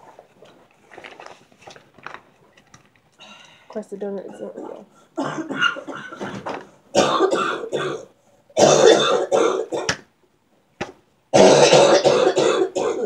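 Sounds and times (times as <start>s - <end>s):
girl coughing and clearing throat: 4.2s - 10.0s, 11.4s - 13.0s.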